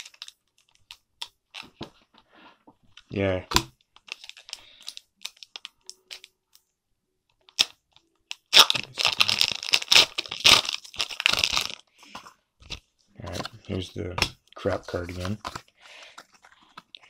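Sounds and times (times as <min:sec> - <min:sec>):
foil wrapper tearing and crinkling: 0:00.0 - 0:01.6, 0:04.0 - 0:06.3, 0:07.5 - 0:11.8.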